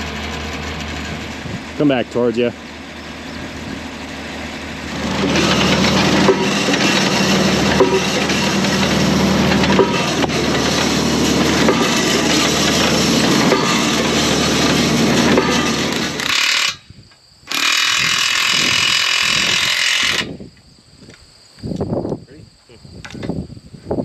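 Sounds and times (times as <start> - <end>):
tractor engine running: 0.0 - 16.8.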